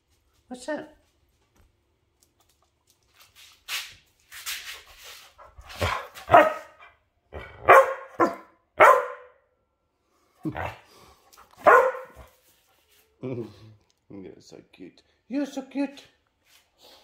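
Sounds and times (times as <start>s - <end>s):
dog barking: 5.8s - 6.8s, 7.4s - 9.4s, 11.6s - 12.3s.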